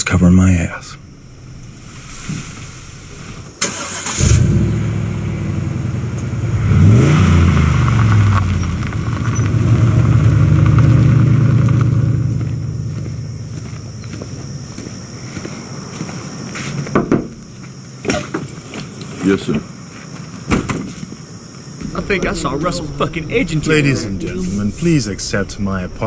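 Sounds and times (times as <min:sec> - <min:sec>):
car engine starting and revving: 0:01.0 - 0:13.5, 0:21.8 - 0:26.0.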